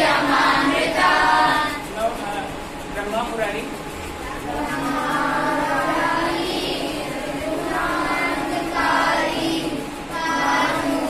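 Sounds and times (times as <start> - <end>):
children singing in unison: 0.0 - 1.9, 4.4 - 11.0.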